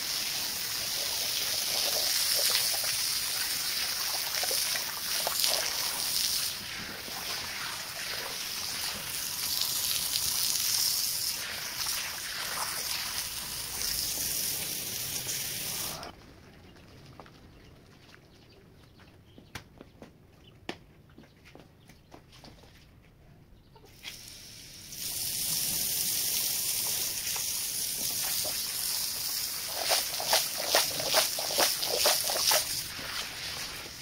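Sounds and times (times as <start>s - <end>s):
water spraying on wet rug: 0.0s - 16.1s, 24.0s - 34.0s.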